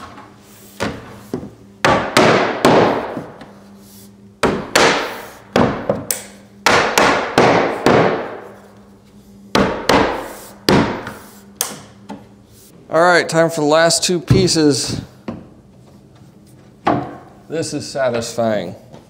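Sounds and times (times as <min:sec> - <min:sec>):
mallet knocking on wooden slats: 0:00.8 - 0:03.4, 0:04.4 - 0:08.4.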